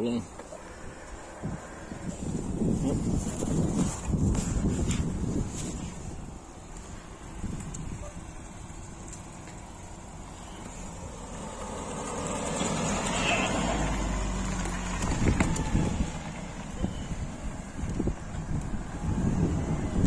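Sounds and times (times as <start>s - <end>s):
vehicle driving past: 9.7s - 17.8s.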